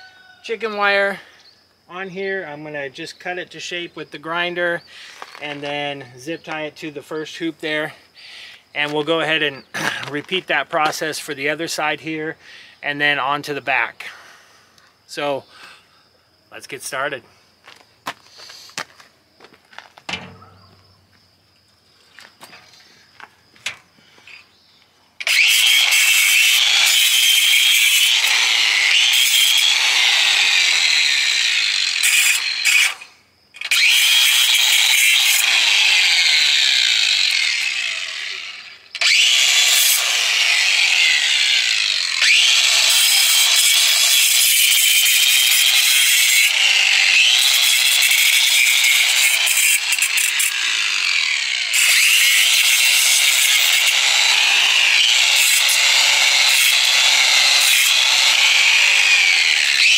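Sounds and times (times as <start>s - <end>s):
angle grinder cutting wire: 25.2s - 59.9s.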